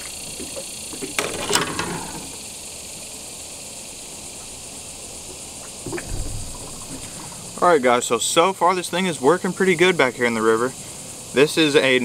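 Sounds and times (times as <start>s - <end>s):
high hiss of insects: 0.0s - 12.0s
fish splashing out of water: 5.7s - 7.6s.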